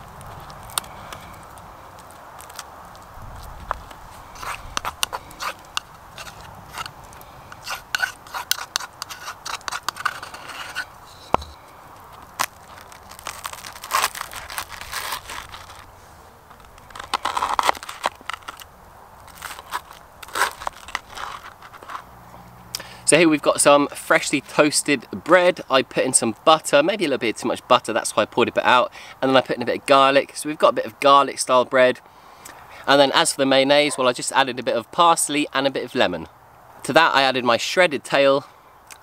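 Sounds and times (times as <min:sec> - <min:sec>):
knife scraping toast: 0:04.3 - 0:11.6, 0:19.3 - 0:22.1.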